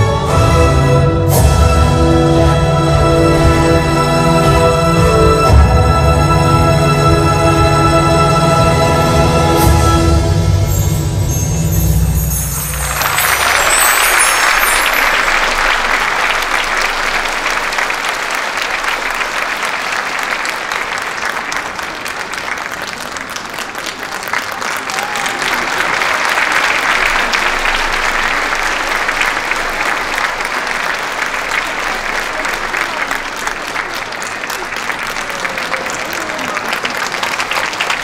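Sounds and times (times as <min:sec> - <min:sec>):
audience applauding: 0:12.4 - 0:38.0.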